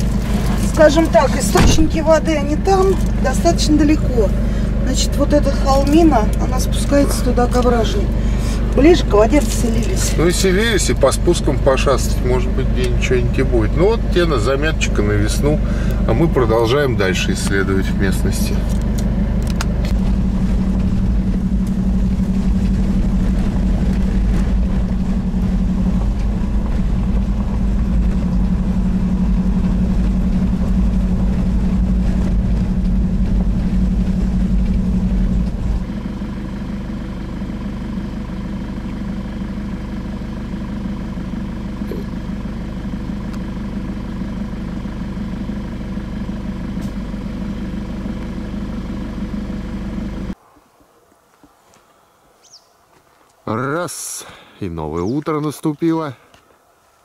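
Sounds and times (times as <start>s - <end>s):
car engine and road noise: 0.0s - 57.0s.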